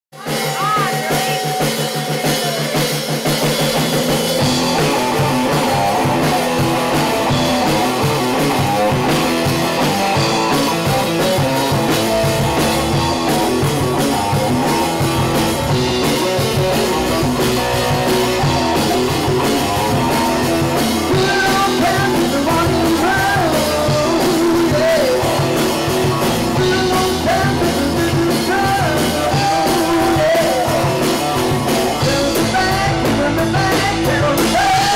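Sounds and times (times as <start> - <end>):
live rock band playing: 0.1 - 34.9
man singing into microphone: 21.1 - 25.7, 26.4 - 34.9.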